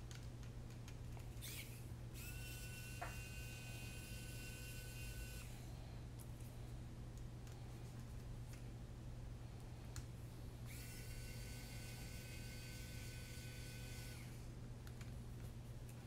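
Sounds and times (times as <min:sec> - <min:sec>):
steady low hum: 0:00.0 - 0:16.0
faint high whine: 0:01.4 - 0:06.8, 0:10.6 - 0:14.5.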